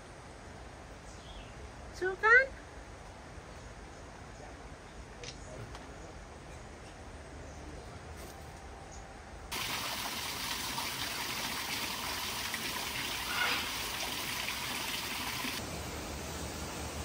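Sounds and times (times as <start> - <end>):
water trickling into a pond: 9.5 - 16.7.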